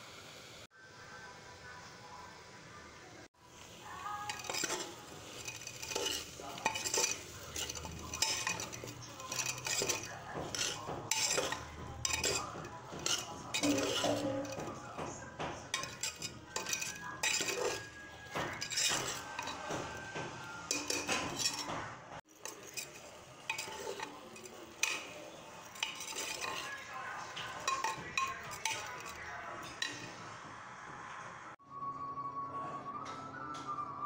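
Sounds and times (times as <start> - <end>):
spoon scraping rice in pan: 4.1 - 30.2.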